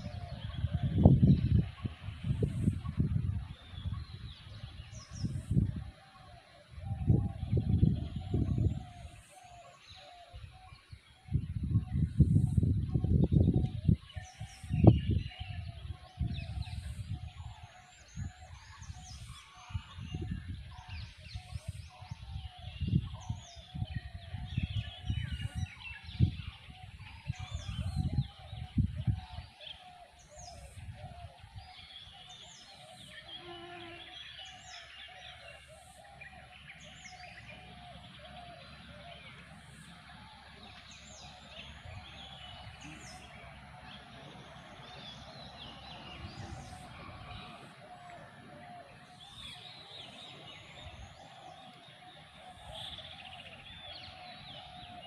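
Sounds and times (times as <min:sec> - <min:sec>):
low rumbles on microphone: 0:00.0 - 0:05.9, 0:11.4 - 0:14.1
birds chirping and calling: 0:00.0 - 0:55.0.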